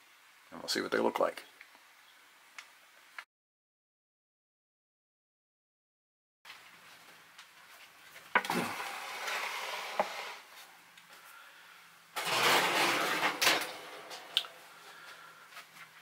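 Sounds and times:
metal sheet pan clattering: 12.2 - 14.6.

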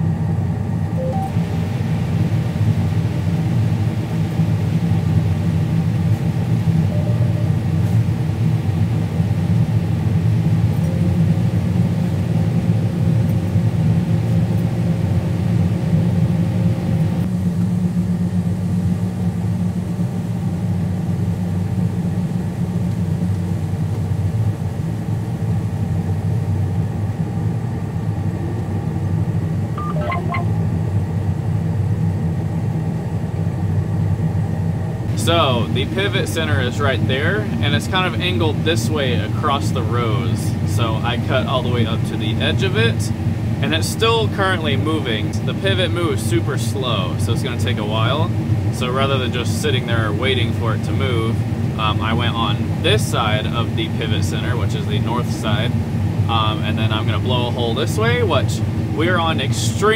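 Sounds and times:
combine harvester engine hum: 0.0 - 31.0, 32.8 - 59.9
short high chirp: 1.0 - 1.4, 29.8 - 30.5.

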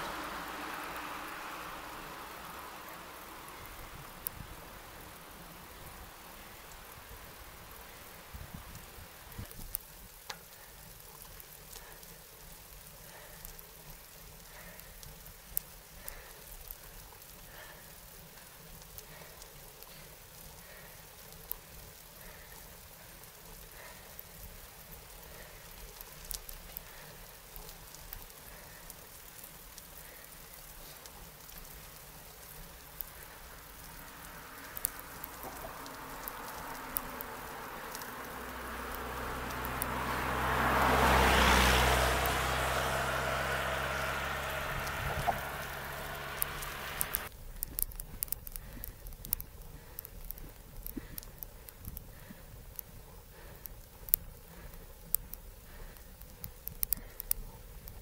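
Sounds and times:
vehicle passing by: 0.0 - 9.3, 31.9 - 47.3
small ticks: 0.0 - 58.0.

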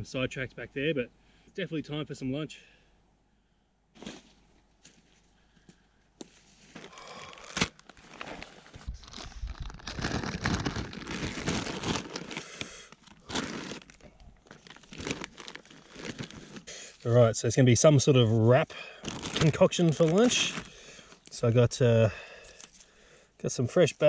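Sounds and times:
plastic wrappers crinkling: 6.6 - 17.0, 19.0 - 21.4.

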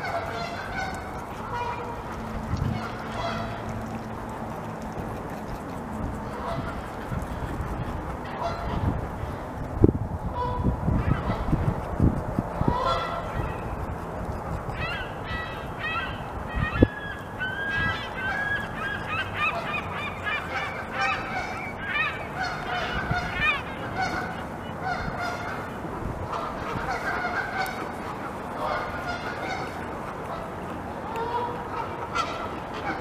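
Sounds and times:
chorus of animal calls: 12.6 - 33.0.

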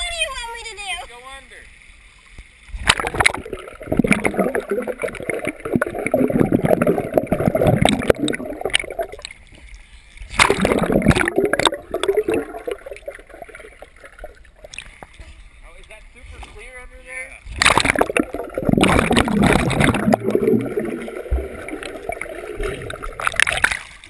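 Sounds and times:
camera splashing into water: 2.8 - 9.2, 10.3 - 13.2, 17.6 - 21.0
muffled underwater gurgling: 2.8 - 9.2, 10.4 - 14.5, 17.4 - 23.5.

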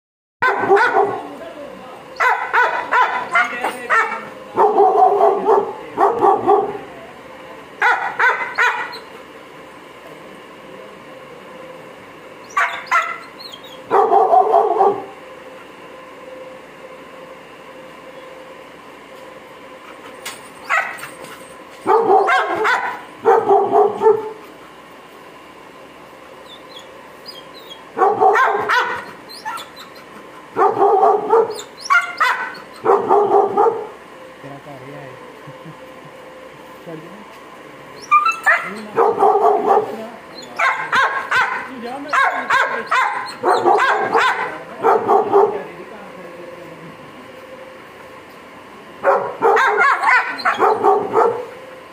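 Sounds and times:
dog barking: 0.4 - 1.3, 2.2 - 6.8, 7.8 - 9.1, 12.5 - 13.3, 13.9 - 15.1, 20.6 - 21.1, 21.8 - 24.4, 28.0 - 30.0, 30.6 - 34.0, 38.1 - 45.6, 49.0 - 51.6.

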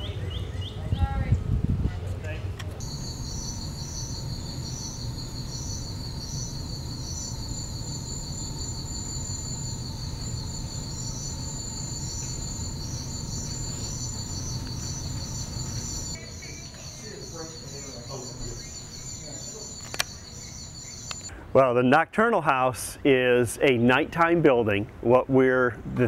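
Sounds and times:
steady low rumble: 0.8 - 16.9
insects chirping: 2.8 - 21.3.

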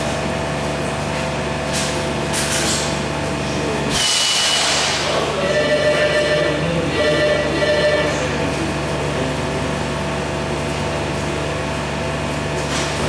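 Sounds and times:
machine hum with low drone: 0.0 - 13.0
machine whine: 0.1 - 13.0.

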